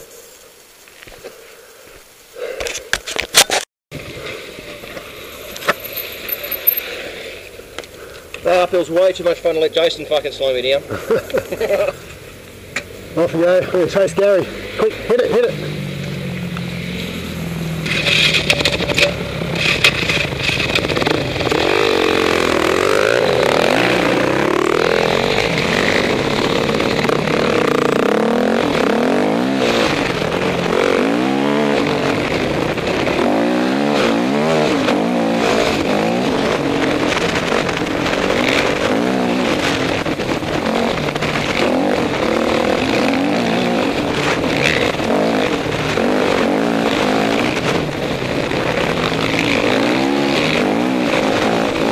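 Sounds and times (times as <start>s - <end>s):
dirt bike engine revving: 13.1s - 51.9s.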